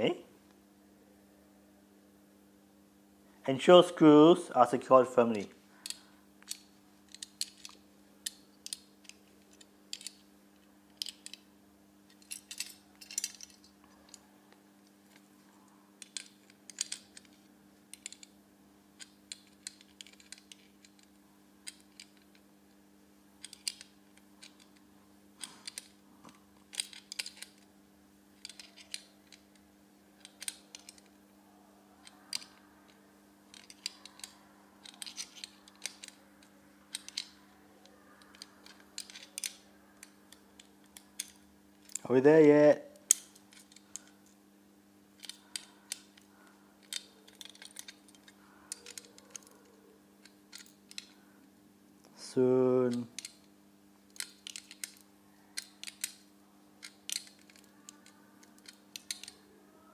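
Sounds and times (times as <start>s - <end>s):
steady low hum: 0.0s - 59.9s
metal screws clinking: 12.1s - 14.2s, 28.4s - 29.4s, 33.5s - 36.2s, 36.9s - 37.4s, 45.2s - 49.6s, 56.8s - 59.4s.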